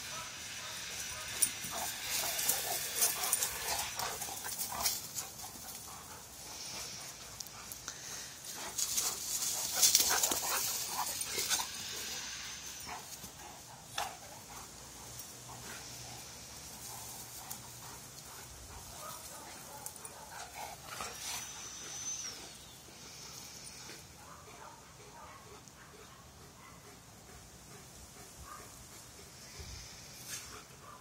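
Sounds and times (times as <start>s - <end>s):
dogs scuffling: 8.4s - 11.8s.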